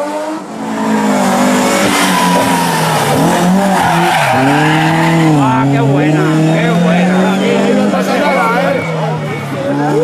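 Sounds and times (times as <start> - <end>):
rally car engine revving: 0.0 - 10.0.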